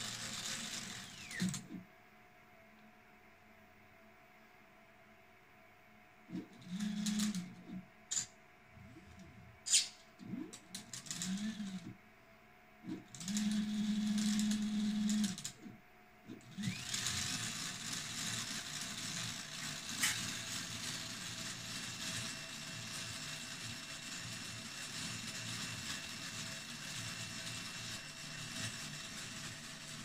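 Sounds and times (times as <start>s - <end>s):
stepper motors whining: 0.0s - 1.8s, 8.8s - 12.0s, 12.9s - 15.7s, 16.4s - 20.8s
steady mechanical whirring: 0.0s - 2.0s, 6.2s - 30.0s.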